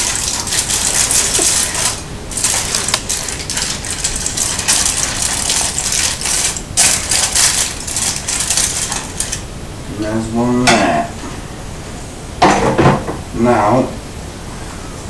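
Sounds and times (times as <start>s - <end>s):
aluminium foil crinkling: 0.0s - 9.4s.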